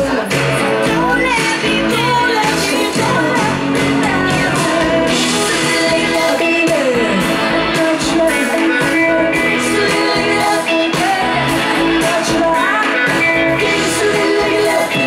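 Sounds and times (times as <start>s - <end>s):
live pop-rock band: 0.0s - 15.0s
woman singing lead: 0.0s - 15.0s.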